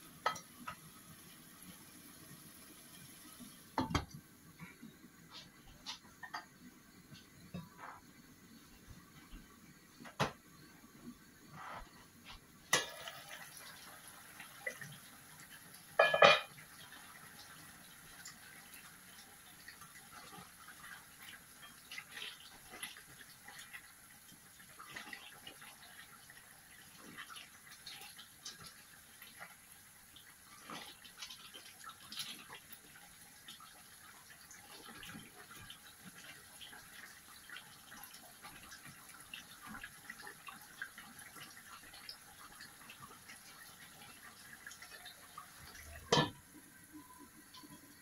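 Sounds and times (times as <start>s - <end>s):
light sizzling: 0.0s - 48.0s
metal lid clanking on pan: 16.0s - 16.5s, 46.1s - 46.4s.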